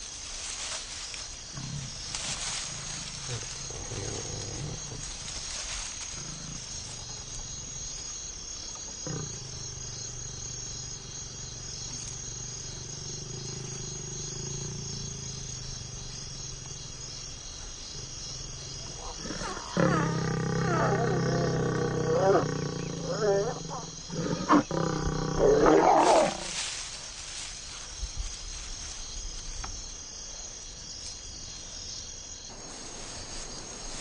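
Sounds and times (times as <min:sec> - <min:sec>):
insects chirring: 0:00.0 - 0:34.0
lion snarling: 0:01.5 - 0:07.9, 0:08.8 - 0:16.6, 0:17.9 - 0:26.6
lion growling: 0:01.5 - 0:08.1, 0:08.7 - 0:16.8, 0:17.9 - 0:26.6.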